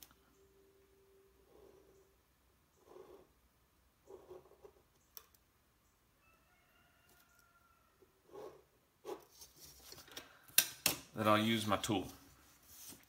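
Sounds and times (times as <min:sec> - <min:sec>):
faint drawn-out tone: 0:00.0 - 0:03.4
pen scratching on paper: 0:02.8 - 0:03.3, 0:04.0 - 0:04.8.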